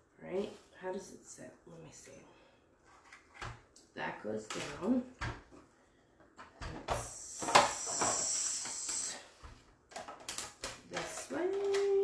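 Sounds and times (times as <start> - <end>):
plastic clicks and knocks: 9.9 - 12.0.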